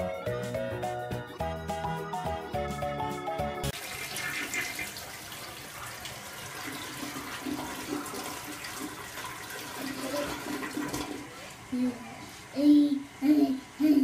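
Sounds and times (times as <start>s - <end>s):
toilet flushing: 3.7s - 11.7s.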